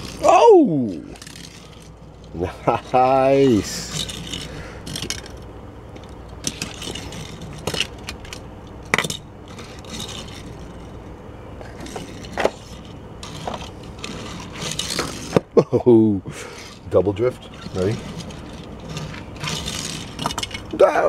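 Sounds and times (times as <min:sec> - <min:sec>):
toy car scraping on wood: 0:00.0 - 0:00.3, 0:00.9 - 0:05.4, 0:06.0 - 0:11.0, 0:11.6 - 0:15.4, 0:16.4 - 0:20.8
toy car clicks and knocks: 0:00.9 - 0:02.0, 0:03.6 - 0:11.0, 0:11.8 - 0:15.5, 0:17.6 - 0:20.8.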